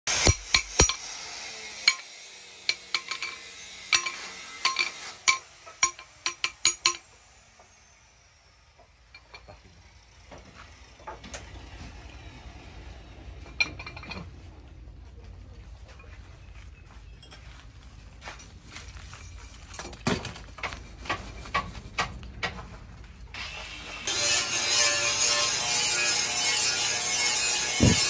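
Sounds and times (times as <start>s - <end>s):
cleaver clinking on iron post: 0.1s - 1.1s, 1.8s - 2.1s, 2.7s - 7.0s.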